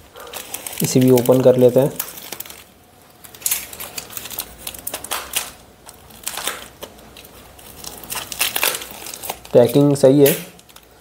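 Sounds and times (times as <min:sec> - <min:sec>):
plastic packaging crinkling: 0:00.0 - 0:11.0
craft knife slitting packaging: 0:03.2 - 0:10.9.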